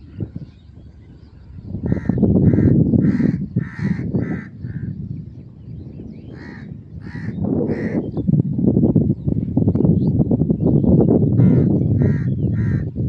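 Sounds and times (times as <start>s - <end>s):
low rumbling noise: 0.0s - 13.0s
crows cawing: 1.9s - 4.9s, 6.4s - 8.0s, 11.4s - 12.9s.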